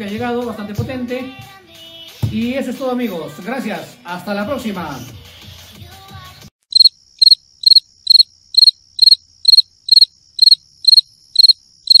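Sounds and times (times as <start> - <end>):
cricket chirping: 6.7 - 12.0
high ringing tone: 6.8 - 12.0.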